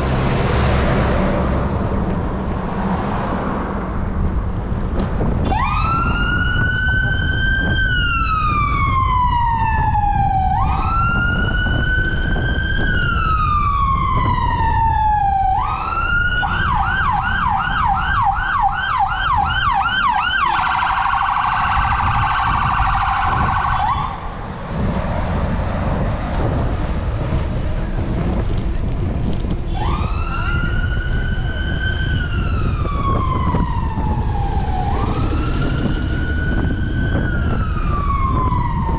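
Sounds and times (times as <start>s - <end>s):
wind and road traffic rumble: 0.0s - 38.9s
siren wailing: 5.4s - 24.3s, 29.7s - 38.9s
siren warbling: 5.5s - 24.3s, 29.7s - 38.9s
siren yelping: 5.5s - 24.3s, 29.7s - 38.9s.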